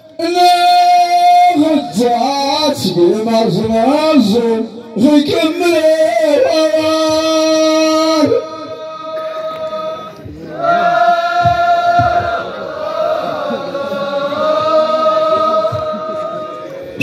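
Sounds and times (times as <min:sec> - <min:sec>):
chorus chanting in unison: 0:08.1 - 0:17.0.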